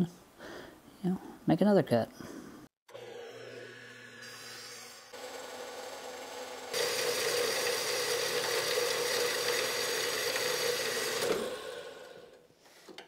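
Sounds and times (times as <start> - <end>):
band saw cutting steel pipe: 2.9 - 12.4.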